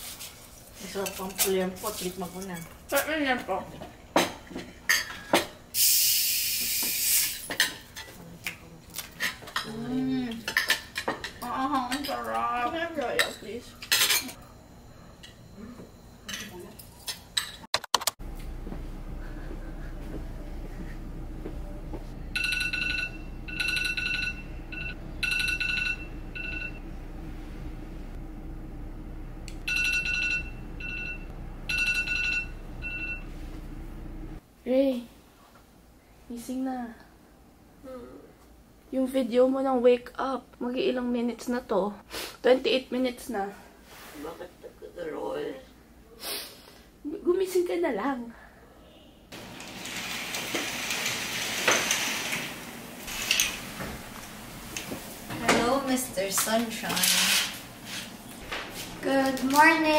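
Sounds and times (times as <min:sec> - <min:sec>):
phone alarm beeping: 0:22.3 - 0:27.0, 0:29.7 - 0:33.5.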